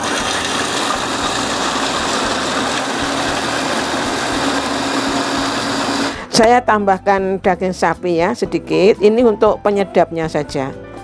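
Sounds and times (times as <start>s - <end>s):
electric food chopper running: 0.0s - 6.3s.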